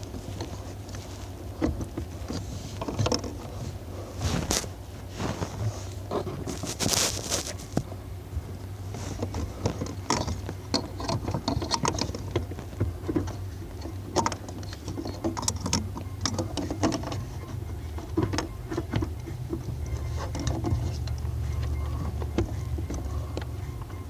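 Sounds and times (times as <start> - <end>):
steady low hum: 0.0 - 24.0
hands clicking and tapping on parts: 9.2 - 24.0.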